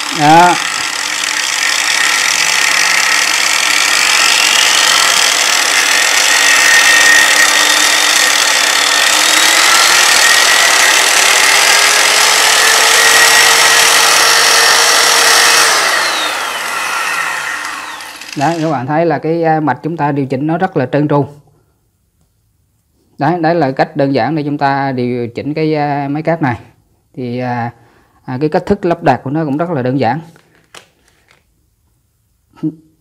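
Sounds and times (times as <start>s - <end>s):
angle grinder motor whine: 0.0s - 18.9s.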